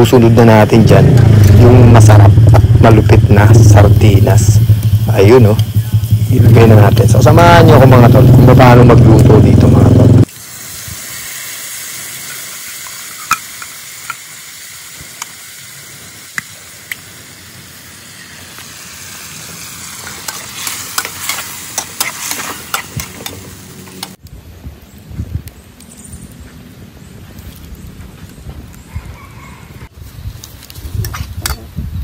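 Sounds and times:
food sizzling in a wok: 0:03.9 - 0:08.4, 0:10.2 - 0:24.2
spatula scraping pan: 0:20.0 - 0:23.4.

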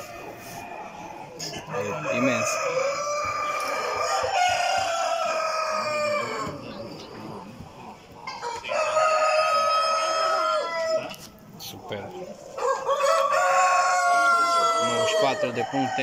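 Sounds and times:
rooster crowing: 0:01.7 - 0:06.6, 0:08.3 - 0:11.2, 0:12.6 - 0:16.0.

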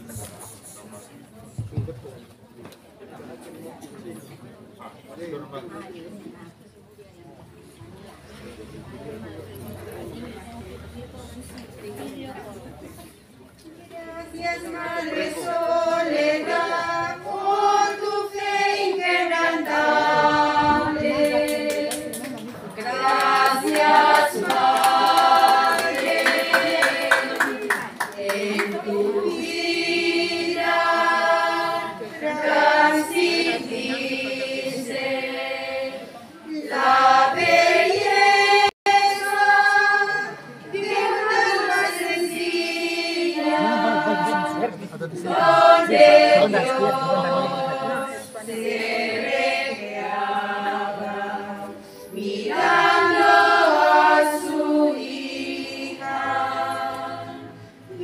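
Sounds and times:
women's choir singing a hymn: 0:13.8 - 0:58.0.

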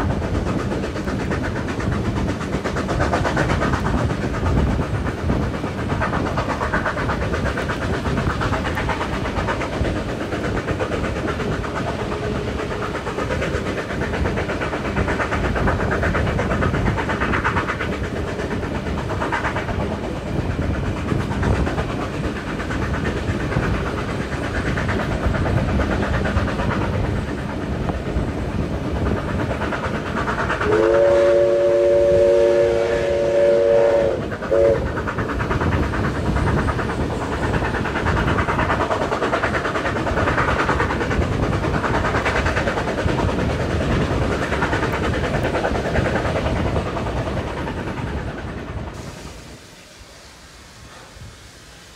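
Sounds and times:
train wheels clattering on rails: 0:00.0 - 0:50.0
steam whistle blast: 0:30.6 - 0:34.8.

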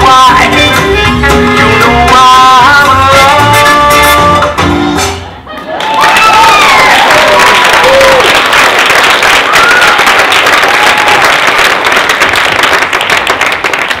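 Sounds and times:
voices whooping and cheering: 0:05.5 - 0:08.5, 0:09.4 - 0:10.2
audience applauding: 0:05.6 - 0:14.0.

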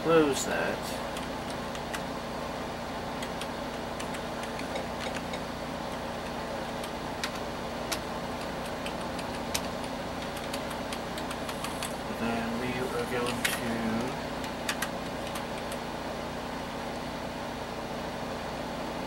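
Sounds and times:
computer fan hum: 0:00.0 - 0:19.0
keyboard keys clicking: 0:03.2 - 0:11.9, 0:14.4 - 0:15.8.

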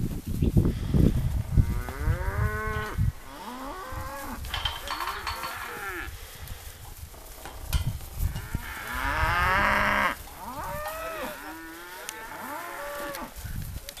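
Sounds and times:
cattle mooing: 0:05.3 - 0:06.1, 0:08.3 - 0:13.3.

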